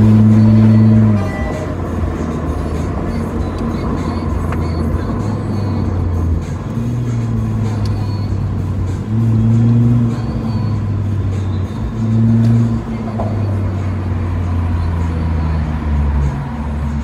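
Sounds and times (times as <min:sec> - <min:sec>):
car exhaust drone from inside cabin: 0:00.0 - 0:17.0.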